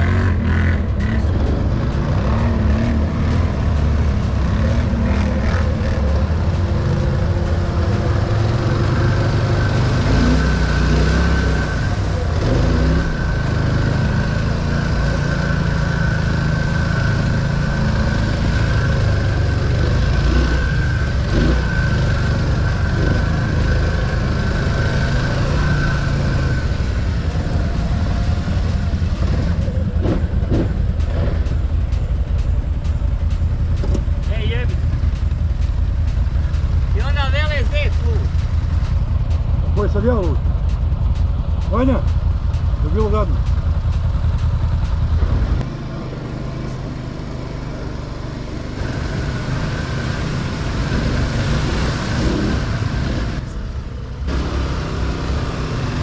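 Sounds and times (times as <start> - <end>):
quad engine running: 0.0 - 56.0.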